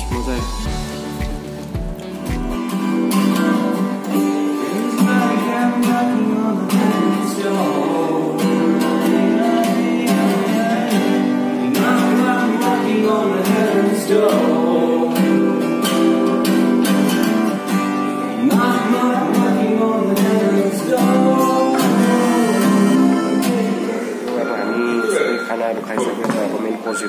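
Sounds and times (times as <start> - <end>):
acoustic guitar strumming chords: 0.0 - 27.0
man singing: 4.6 - 16.6, 18.2 - 24.6.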